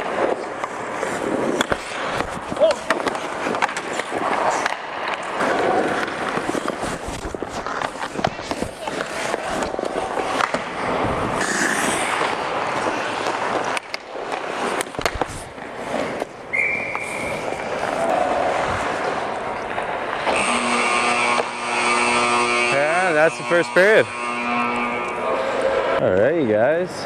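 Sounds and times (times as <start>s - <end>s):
sticks and puck clattering: 0.0s - 26.3s
skates scraping ice: 0.0s - 26.5s
steady horn: 20.3s - 26.0s.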